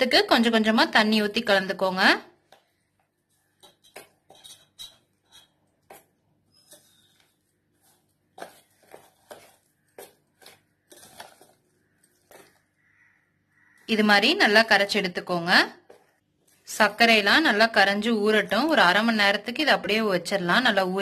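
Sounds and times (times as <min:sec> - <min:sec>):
spoon scraping a steel bowl: 0:03.2 - 0:12.7.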